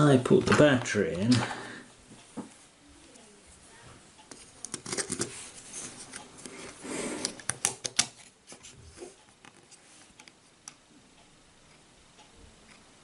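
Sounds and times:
handling scrapes: 4.3s - 7.4s.

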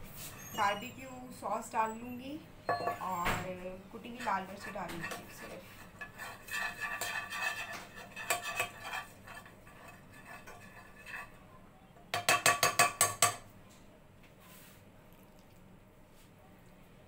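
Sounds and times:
spatula scraping frying pan: 3.9s - 11.4s.

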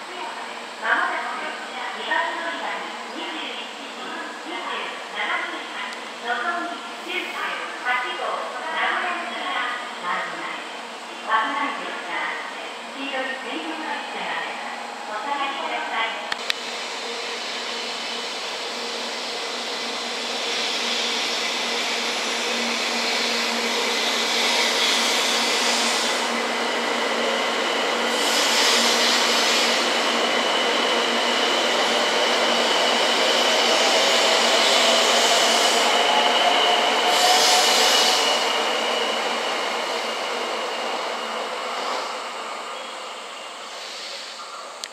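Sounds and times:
train running noise: 0.0s - 44.9s
train traction motor whine: 14.1s - 43.4s.

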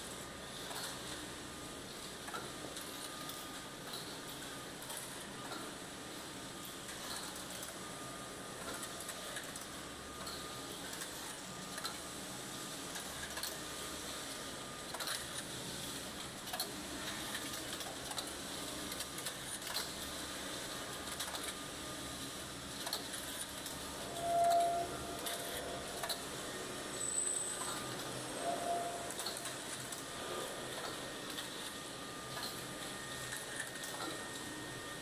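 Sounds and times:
brief loud tone: 24.1s - 25.6s, 28.4s - 29.4s.

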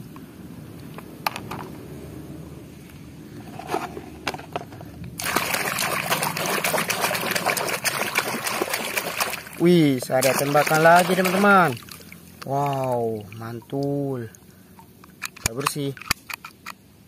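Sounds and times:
water pouring: 5.2s - 14.0s
water splashing: 5.2s - 14.4s
plastic toy clicks and scrapes: 15.2s - 16.8s.

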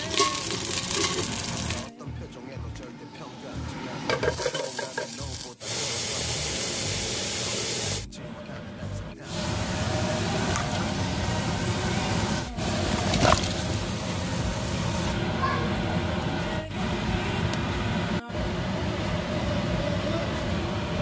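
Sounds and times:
loud steady hiss: 4.4s - 8.1s, 9.2s - 15.4s.

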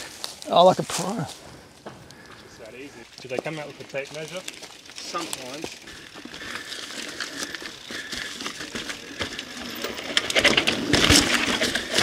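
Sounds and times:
bike tyres crunching on dirt: 0.0s - 12.0s
bike clicking and rattling: 1.8s - 12.0s.

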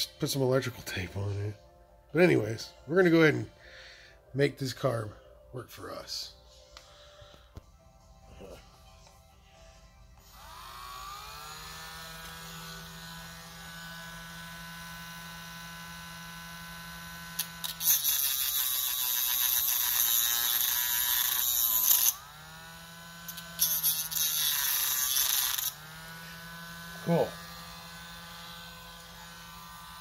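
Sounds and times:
rotary tool high whine: 10.2s - 30.0s
cutoff wheel grinding metal: 17.4s - 30.0s.

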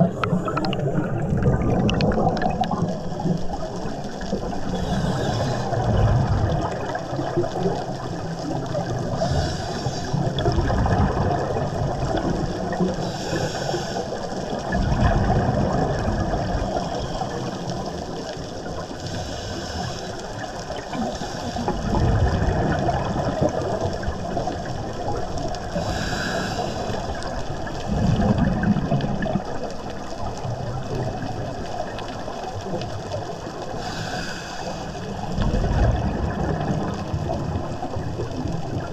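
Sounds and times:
exhaled bubbles rumbling: 0.0s - 38.9s
inhale hiss: 4.6s - 6.0s, 9.1s - 10.4s, 12.9s - 14.5s, 18.9s - 21.8s, 25.7s - 27.4s, 33.6s - 35.4s
diver breathing through regulator: 4.7s - 6.0s, 9.1s - 10.4s, 13.0s - 14.4s, 19.0s - 20.3s, 20.9s - 21.9s, 25.8s - 27.3s, 33.8s - 35.1s.

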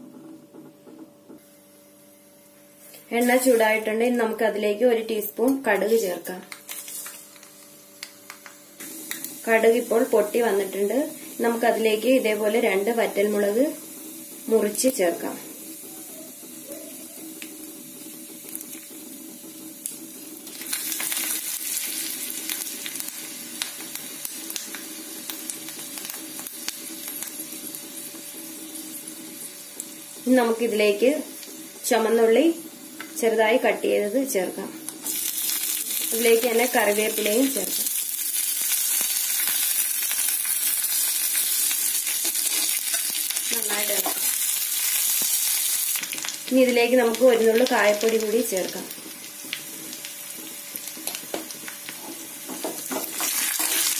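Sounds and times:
hot oil sizzling and crackling: 2.8s - 53.9s.

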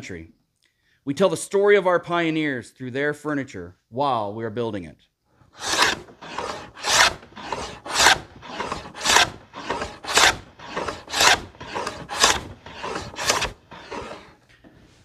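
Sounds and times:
hand plane shaving wood: 5.5s - 14.4s.

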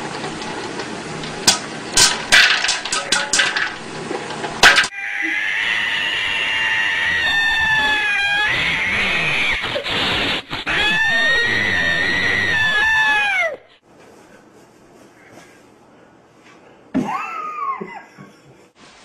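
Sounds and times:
cat yowling: 4.9s - 9.9s, 10.6s - 13.6s.

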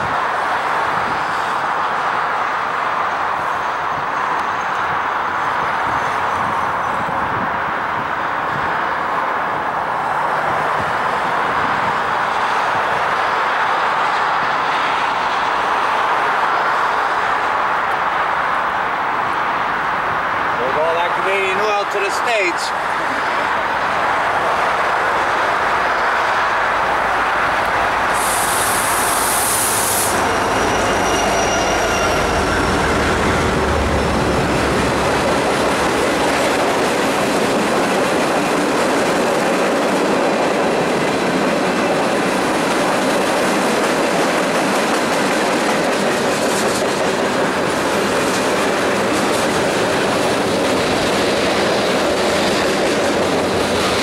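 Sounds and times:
freight cars rolling: 3.9s - 54.0s
diesel locomotive rumble: 22.6s - 44.4s
short hiss: 28.2s - 30.2s.

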